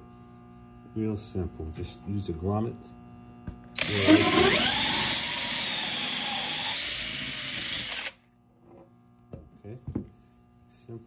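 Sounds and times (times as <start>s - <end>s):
cordless drill whining: 3.8s - 8.2s.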